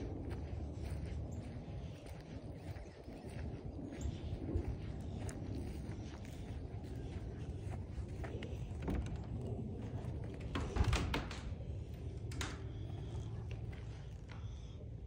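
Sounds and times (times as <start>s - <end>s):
steady low rumble: 0.0s - 15.0s
door thunk: 10.5s - 11.5s.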